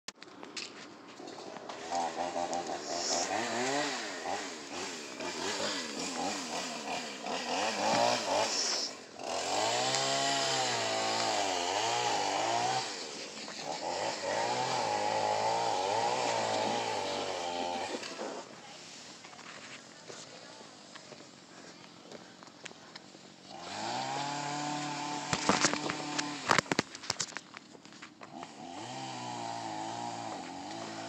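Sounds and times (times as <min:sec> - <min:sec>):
small engine revving: 0:01.2 - 0:19.2, 0:23.0 - 0:26.8, 0:28.2 - 0:31.0.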